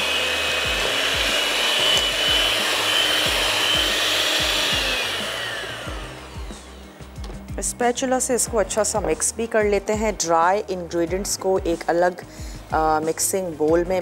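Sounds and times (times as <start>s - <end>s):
electric hand beater whining: 0.0s - 7.4s.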